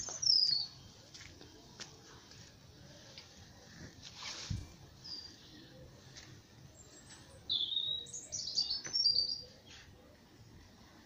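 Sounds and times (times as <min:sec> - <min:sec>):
songbird singing: 0:00.0 - 0:01.7, 0:04.8 - 0:10.2.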